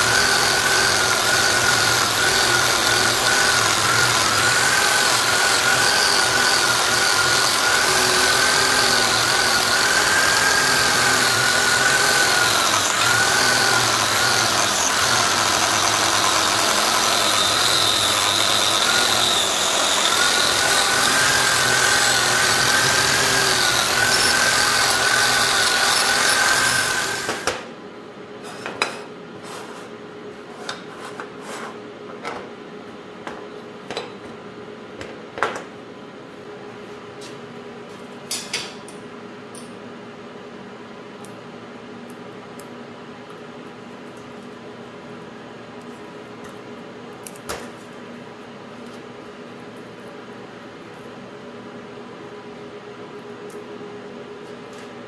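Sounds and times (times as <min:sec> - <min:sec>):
angle grinder motor whine: 0:00.0 - 0:27.6.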